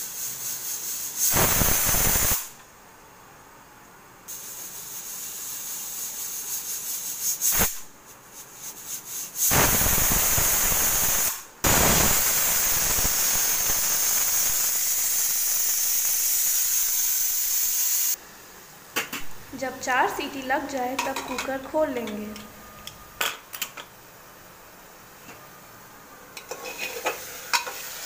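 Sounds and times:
pressure cooker whistling: 0.0s - 2.5s, 9.4s - 18.2s
steam hissing and sputtering: 0.0s - 2.6s, 4.3s - 18.2s, 26.4s - 28.0s.

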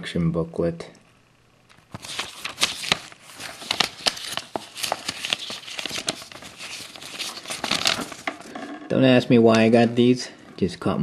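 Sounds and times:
paper pages rustling: 1.8s - 8.6s.

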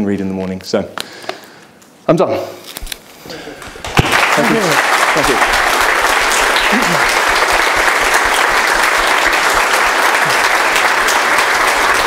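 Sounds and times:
audience applauding: 3.6s - 12.0s.

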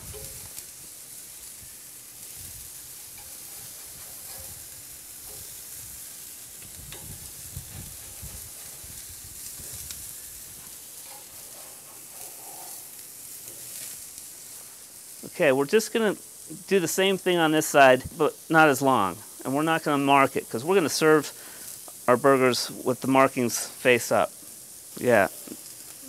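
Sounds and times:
patties sizzling on grill: 0.0s - 26.0s
metal spatula clicking on grate: 3.1s - 5.6s, 11.0s - 12.8s.

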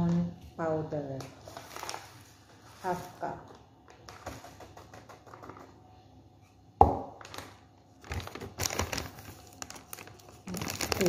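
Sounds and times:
plastic bag crinkling: 1.2s - 3.2s, 7.1s - 11.0s.

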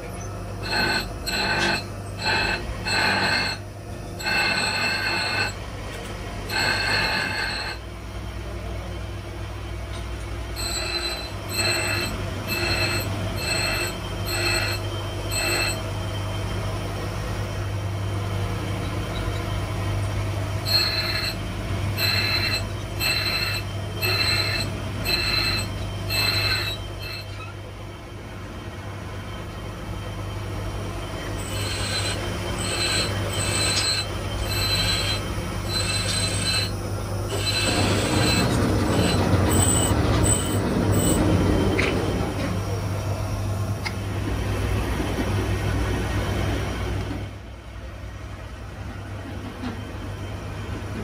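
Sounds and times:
metal squealing on grinding wheel: 0.0s - 5.6s, 6.5s - 7.9s, 10.6s - 16.2s, 19.0s - 19.6s, 20.6s - 27.6s, 31.2s - 42.4s
bench grinder motor humming: 0.6s - 3.6s, 4.2s - 5.6s, 6.5s - 7.8s, 10.6s - 15.8s, 20.6s - 27.3s, 31.4s - 41.2s.

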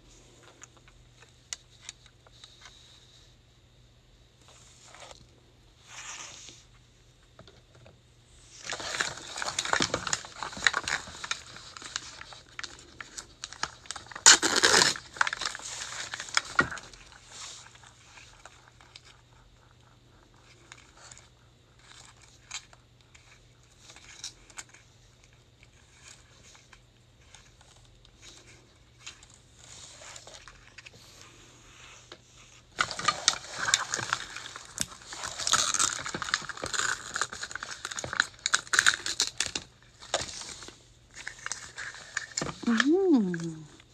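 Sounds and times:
plastic wrapping crinkling and tearing: 8.5s - 19.4s, 32.7s - 43.7s.

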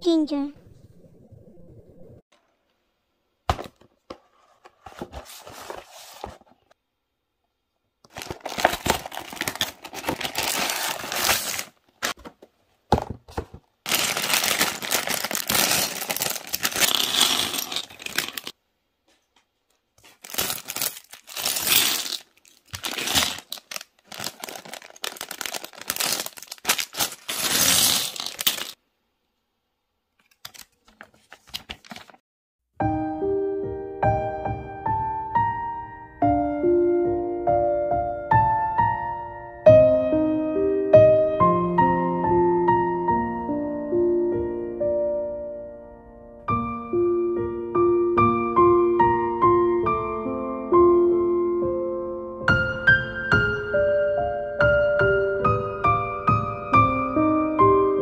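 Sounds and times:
plastic bags crinkling and tearing: 8.1s - 12.3s, 13.8s - 18.5s, 20.0s - 28.8s, 30.3s - 32.2s
plastic bricks clattering: 13.0s - 18.6s, 20.2s - 28.8s.

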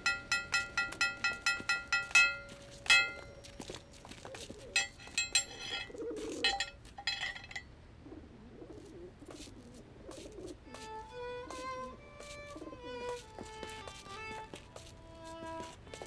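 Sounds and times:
metal bell clanging: 0.0s - 4.2s, 4.8s - 7.7s
bird cooing softly: 4.2s - 4.9s, 5.5s - 6.7s, 8.0s - 10.6s.

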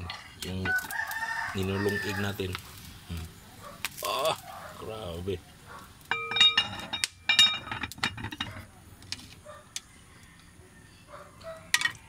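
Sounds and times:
metal pot lid clinking: 6.1s - 8.7s.

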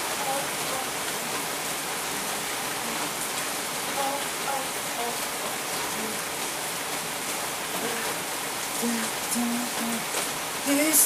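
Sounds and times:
rain on hard surfaces: 0.0s - 11.0s
faint voice: 0.1s - 1.1s, 4.0s - 6.2s, 7.7s - 8.2s.

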